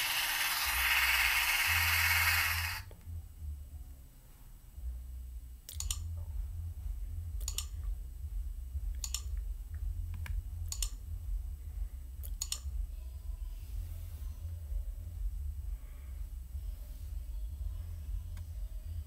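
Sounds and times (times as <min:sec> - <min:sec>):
low steady rumble: 0:00.0 - 0:19.0
sharp clicks: 0:05.7 - 0:06.1, 0:07.4 - 0:07.7, 0:09.0 - 0:09.4, 0:10.2 - 0:11.0, 0:12.2 - 0:12.7.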